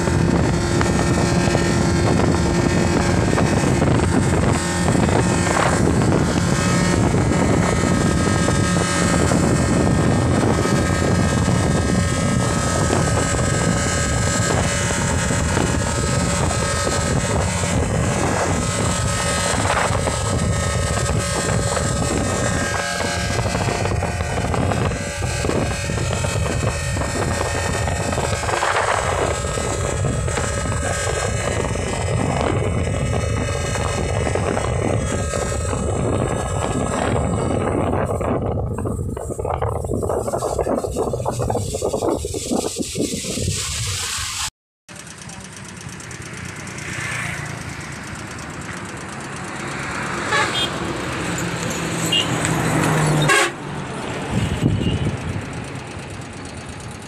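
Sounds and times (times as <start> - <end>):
jet ski engine running: 0.0 - 57.0.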